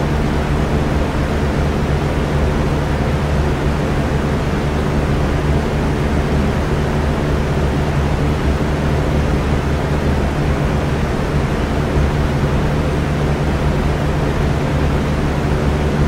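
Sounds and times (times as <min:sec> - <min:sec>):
electric fan running: 0:00.0 - 0:16.0.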